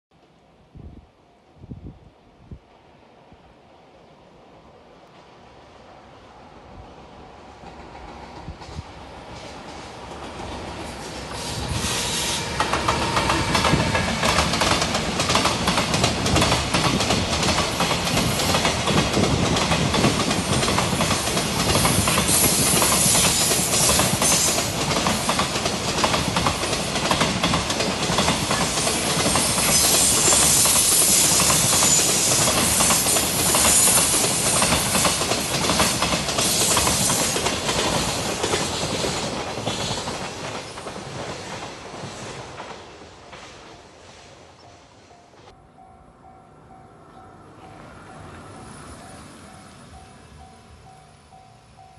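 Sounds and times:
freight train passing: 0.2s - 51.9s
train wheels on rails: 5.0s - 45.6s.

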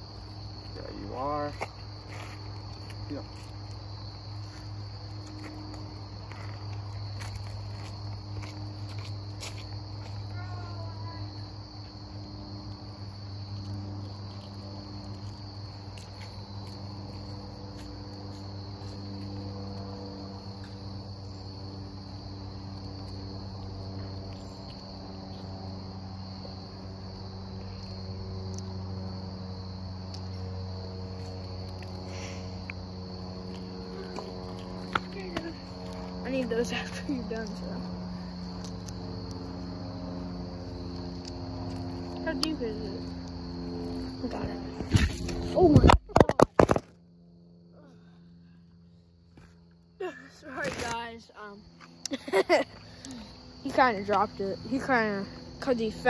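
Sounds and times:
high-pitched insect chorus: 0.0s - 56.0s
shuffling steps: 1.5s - 10.8s.

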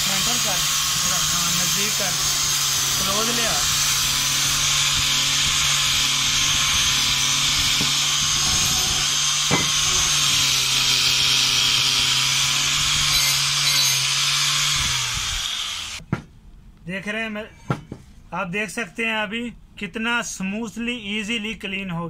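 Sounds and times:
wire brush hissing on metal: 0.0s - 12.2s
angle grinder motor hum: 0.0s - 16.0s
grinder winding down: 0.0s - 16.0s.

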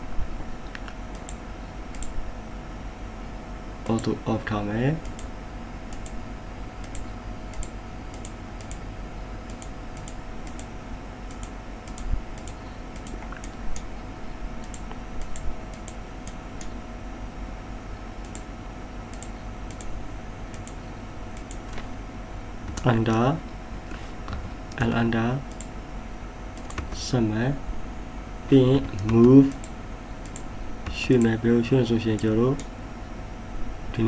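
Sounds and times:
faint steady hum: 0.0s - 34.0s
computer mouse clicking: 0.7s - 2.2s, 5.0s - 5.3s, 5.9s - 6.2s, 6.8s - 8.8s, 9.5s - 10.7s, 11.3s - 13.9s, 14.6s - 16.8s, 18.2s - 18.5s, 19.1s - 19.9s, 20.5s - 21.9s, 25.5s - 25.7s, 26.6s - 27.0s, 28.8s - 31.3s.

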